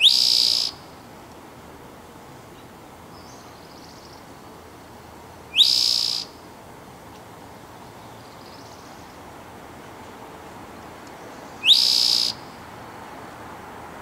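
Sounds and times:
bird song with buzzy trill: 0.0s - 0.8s, 3.1s - 6.4s, 10.8s - 12.5s
distant birds trilling: 0.0s - 1.1s, 2.4s - 6.7s, 7.4s - 13.2s.

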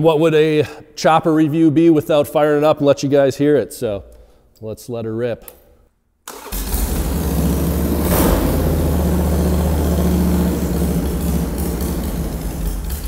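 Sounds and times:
motorcycle engine running loudly: 6.6s - 13.0s.

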